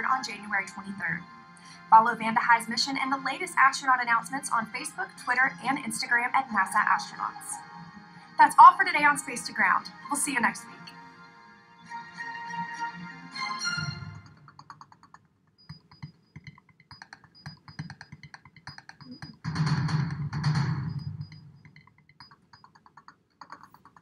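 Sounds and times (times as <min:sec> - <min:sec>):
keyboard typing clicks: 0:14.2 - 0:19.5, 0:20.8 - 0:24.0.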